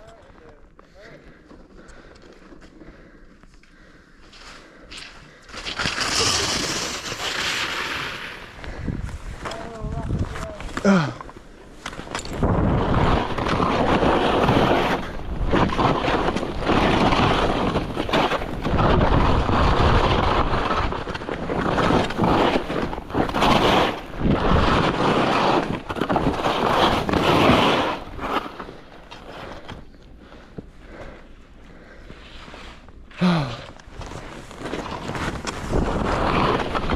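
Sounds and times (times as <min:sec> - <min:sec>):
skis scraping through snow: 0:04.2 - 0:10.8, 0:11.8 - 0:31.2, 0:32.0 - 0:33.1, 0:33.9 - 0:36.9
wind rushing over microphone: 0:08.4 - 0:10.8, 0:12.3 - 0:28.2, 0:34.9 - 0:36.9.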